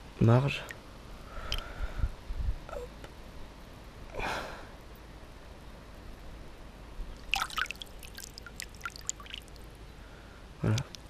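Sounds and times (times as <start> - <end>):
water splashing and dripping: 7.2 - 9.7.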